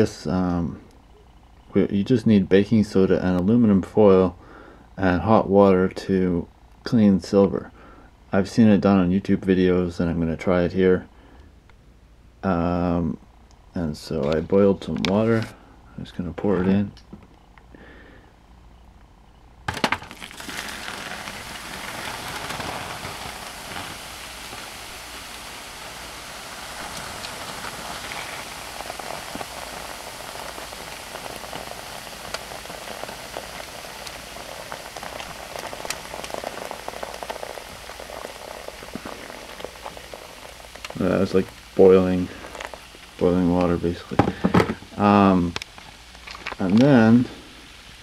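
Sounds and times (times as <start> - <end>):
water pouring with splash: 19.8 - 47.4
fizzing and bubbling: 19.8 - 48.0.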